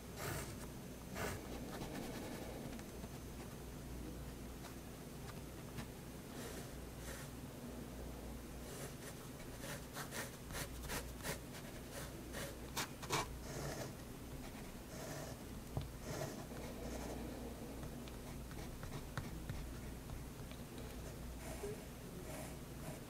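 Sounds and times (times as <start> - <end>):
pen scratching on paper: 8.7 - 15.4, 16.0 - 17.2, 17.8 - 20.2.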